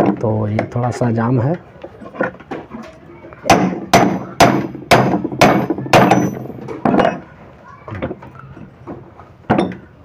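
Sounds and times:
hammer knocking metal gear: 0:03.5 - 0:07.2.

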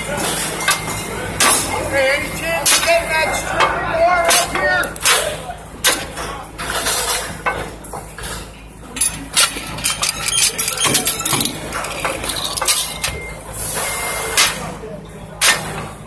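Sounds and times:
low machinery hum: 0:00.0 - 0:16.0
metal clanks and clinks: 0:05.9 - 0:13.4.

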